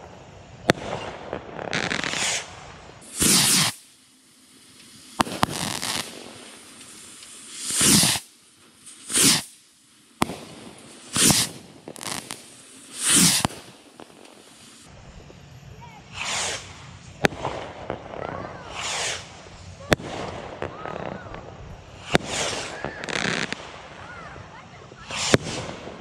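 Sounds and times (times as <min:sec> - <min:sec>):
bottle rockets whooshing: 0:02.1 - 0:03.8, 0:07.6 - 0:08.3, 0:09.0 - 0:09.5, 0:11.1 - 0:13.7, 0:16.1 - 0:16.8, 0:18.6 - 0:19.4
sharp pops of bursts: 0:03.0 - 0:03.9, 0:04.7 - 0:09.6, 0:10.2 - 0:14.8.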